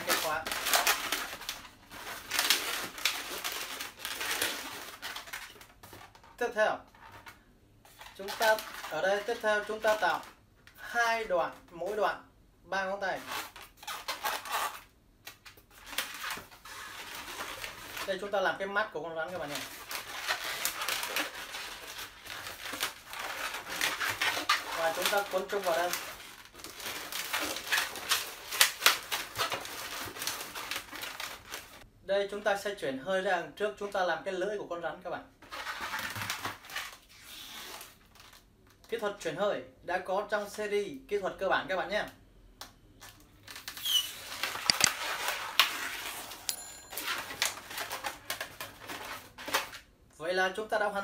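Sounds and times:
balloons squeaking and rubbing: 0.0 - 5.6, 13.1 - 14.9, 19.3 - 31.8, 37.0 - 38.0, 43.6 - 46.6
balloon squeaking: 43.6 - 45.0.

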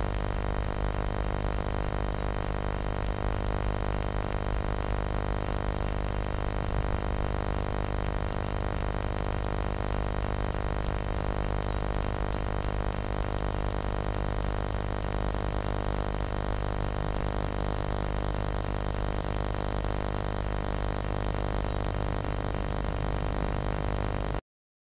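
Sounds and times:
steady hum with hiss: 0.0 - 24.4
faint high bird chirps: 1.0 - 4.0, 10.6 - 13.6, 20.6 - 23.5.

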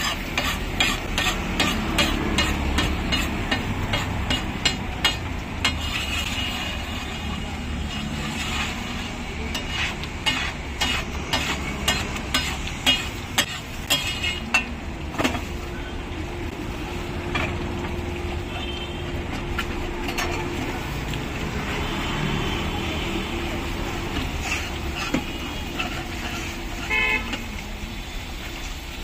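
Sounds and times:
metal spatula clanking on griddle: 0.0 - 6.5, 9.5 - 15.5, 24.1 - 27.4
steady sizzle: 0.0 - 29.0.

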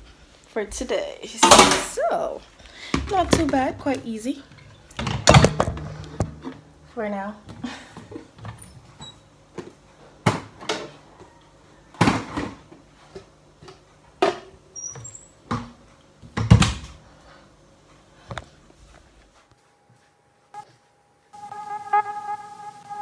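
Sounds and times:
cupboard items knocking and clattering: 5.0 - 6.6.

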